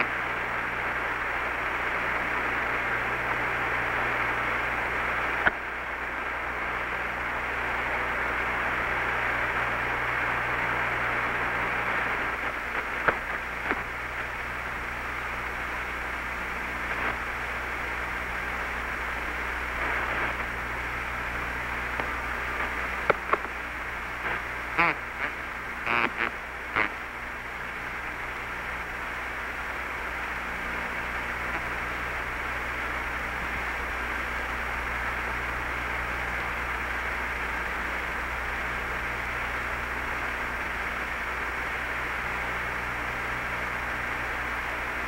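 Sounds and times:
radio static hiss: 0.0s - 45.0s
sharp clicks: 23.0s - 23.5s.

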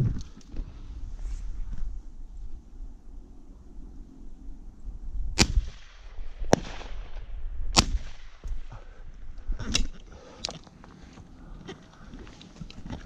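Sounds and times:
shotgun shots: 5.4s - 7.2s, 7.8s - 8.4s.

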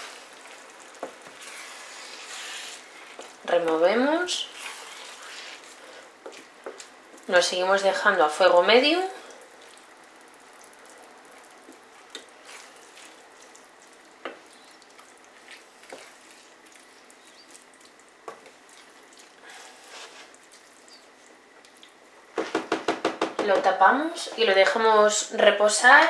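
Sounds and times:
food sizzling in pan: 0.0s - 3.4s
wooden spatula knocking on pan: 22.4s - 23.7s.

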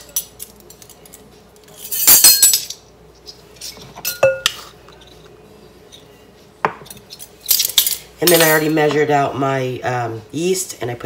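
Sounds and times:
metal measuring spoons jangling: 7.0s - 8.8s.

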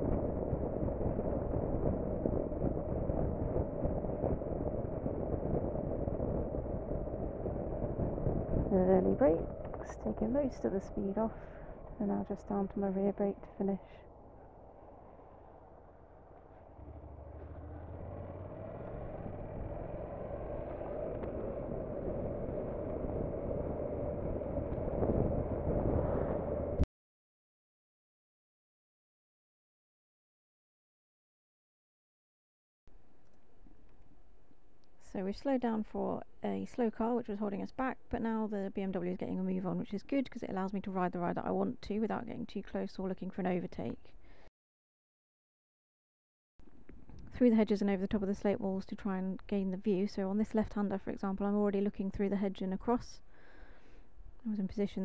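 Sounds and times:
motorcycle engine hum: 0.0s - 26.9s
wind and road noise: 0.0s - 26.9s.

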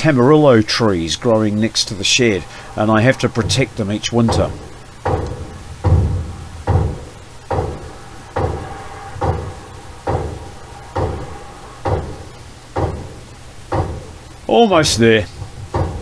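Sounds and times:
hatchet striking wooden joist: 2.4s - 14.2s, 15.7s - 16.0s.

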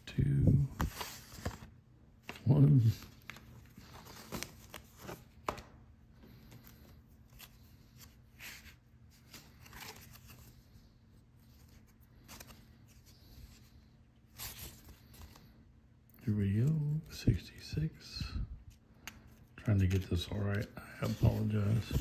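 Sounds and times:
cardboard tickets rustling: 19.6s - 22.0s.

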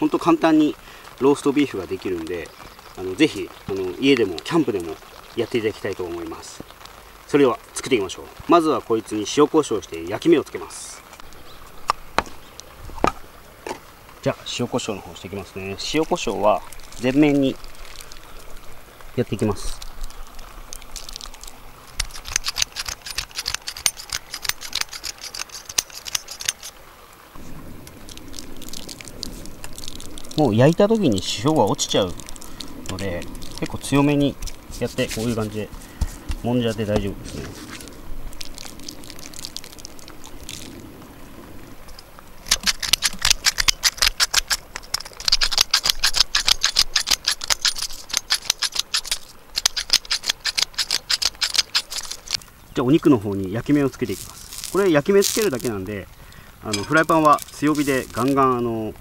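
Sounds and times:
pepper mill grinding: 22.0s - 26.7s, 42.5s - 52.4s.

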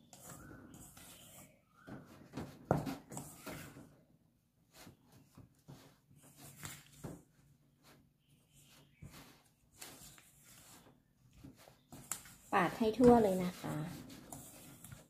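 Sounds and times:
spatula scraping steel bowl: 0.0s - 1.6s, 8.6s - 15.0s.

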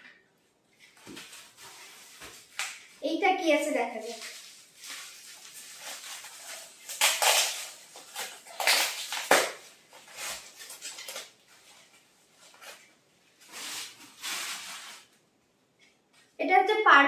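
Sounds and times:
plastic packaging crinkling: 4.0s - 15.2s.

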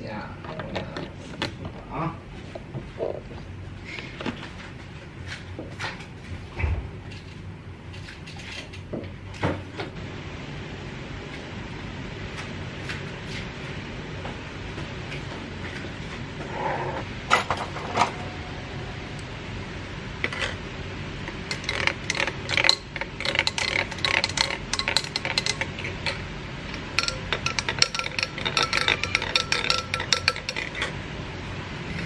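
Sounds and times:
spoons clinking against glass: 21.5s - 30.9s
glasses knocking on table: 27.0s - 30.8s.

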